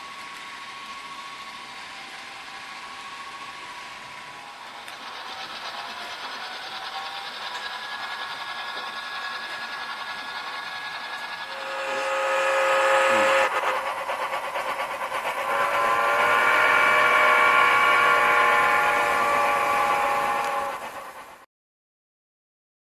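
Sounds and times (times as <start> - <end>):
steam whistle: 8.7 - 13.9, 15.2 - 21.2.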